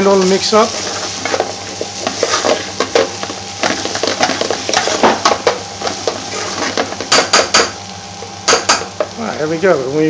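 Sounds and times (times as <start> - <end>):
metal spoon scraping a pan: 0.6 - 7.4.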